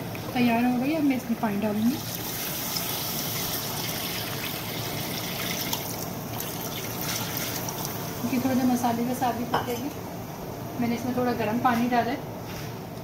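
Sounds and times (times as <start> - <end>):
water pouring into a pot: 2.0 - 8.4.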